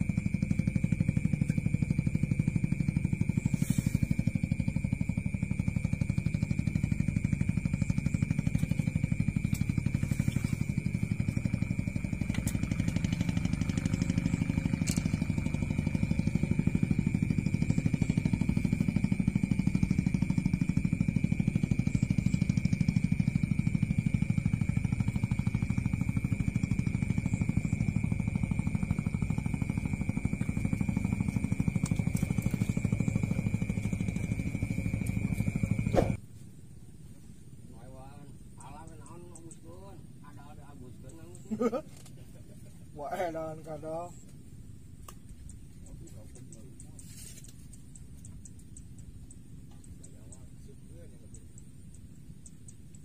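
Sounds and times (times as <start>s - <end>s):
small engine droning: 0.0s - 36.2s, 38.6s - 53.0s
faint clicks: 45.0s - 50.6s, 51.3s - 53.0s.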